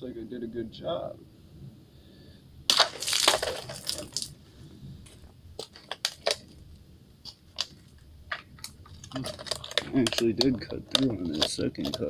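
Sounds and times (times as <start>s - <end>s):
water splashing: 2.7s - 4.3s.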